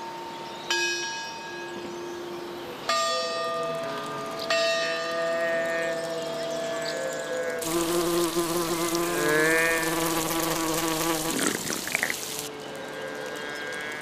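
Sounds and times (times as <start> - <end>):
cartoon insect wings buzzing: 7.6 - 12.5
water pouring from fountain: 7.6 - 14.0.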